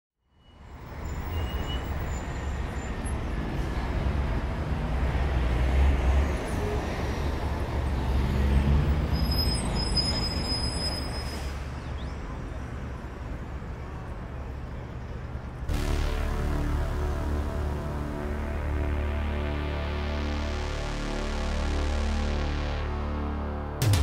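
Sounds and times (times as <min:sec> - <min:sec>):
low rumble with noise: 0:14.8 - 0:24.0.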